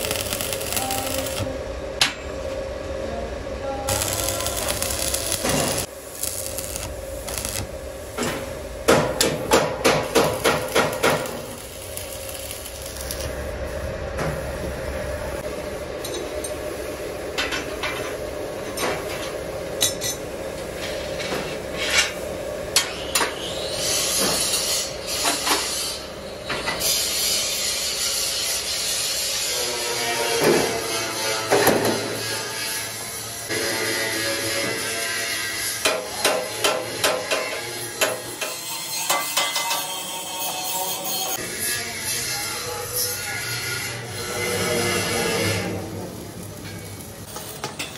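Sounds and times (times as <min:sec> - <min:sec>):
steady hum: 0:00.0 - 0:17.4
hammer striking steel frame: 0:08.4 - 0:11.5, 0:35.8 - 0:39.9.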